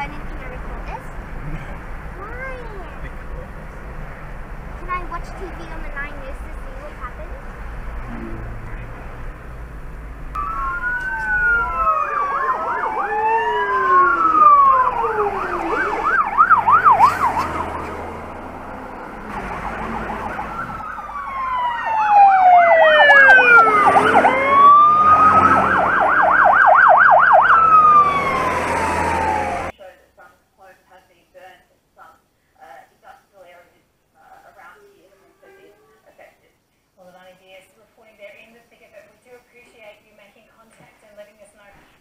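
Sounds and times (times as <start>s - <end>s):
fire engine sirens: 10.3s - 29.7s.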